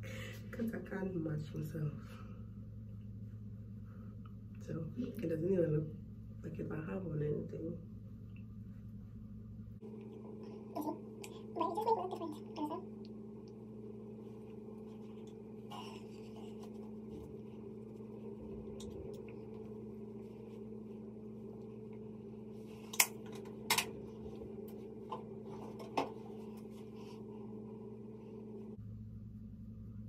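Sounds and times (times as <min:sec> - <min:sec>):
low room hum: 0:00.0 - 0:30.0.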